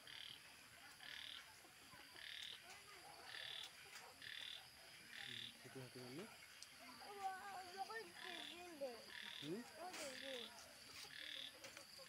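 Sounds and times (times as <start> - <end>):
faint frog croaking: 0.0 - 12.0.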